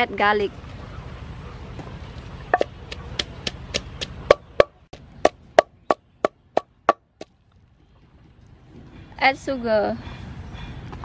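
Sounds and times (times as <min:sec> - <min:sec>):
pestle pounding in mortar: 0:02.6 - 0:07.0.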